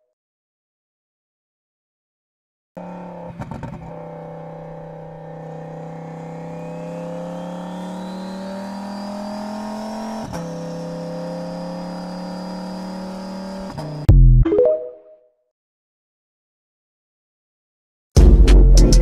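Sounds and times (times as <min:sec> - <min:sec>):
car engine accelerating: 0:02.8 - 0:14.1.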